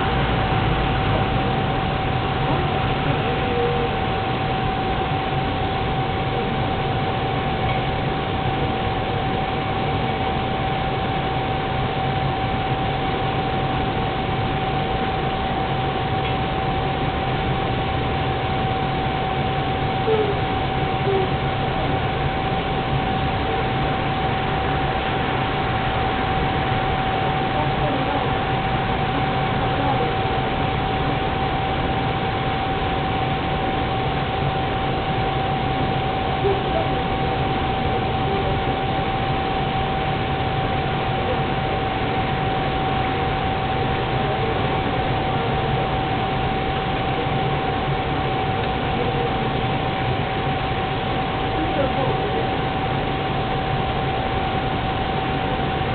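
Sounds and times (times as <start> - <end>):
propane burner hissing: 0.0 - 55.9
thin constant tone: 0.0 - 55.9.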